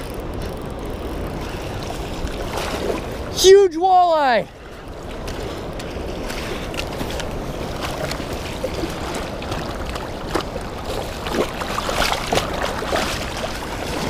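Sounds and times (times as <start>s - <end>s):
river water rushing: 0.0s - 14.0s
fish splashing: 5.1s - 14.0s.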